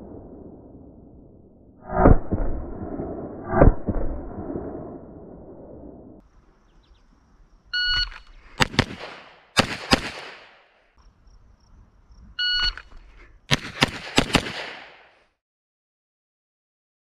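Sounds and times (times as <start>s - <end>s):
pistol shots: 8.6s - 10.8s, 13.5s - 15.2s.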